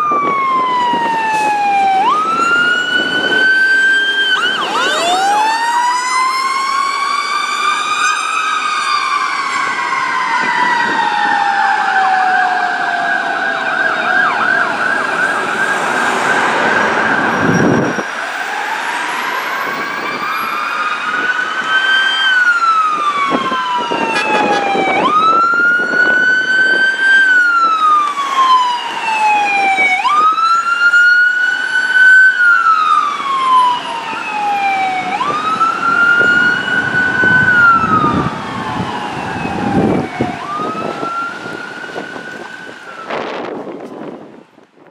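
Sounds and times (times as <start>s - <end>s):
electronic siren wailing: 0.0s - 43.8s
fire truck warbling siren: 0.0s - 44.7s.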